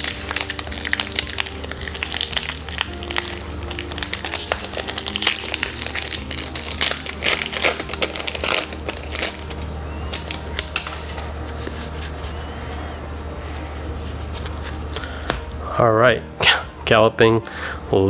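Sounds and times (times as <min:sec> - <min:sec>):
foil wrapper crinkling: 0:00.0 - 0:12.9
soft background music: 0:00.0 - 0:18.0.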